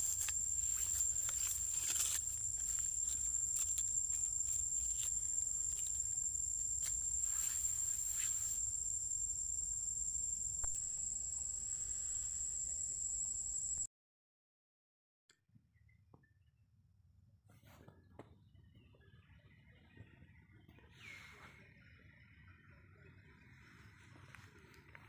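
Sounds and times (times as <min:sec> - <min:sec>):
rustling in dry leaf litter: 0:00.0 - 0:08.9
high-pitched insect drone: 0:00.0 - 0:13.9.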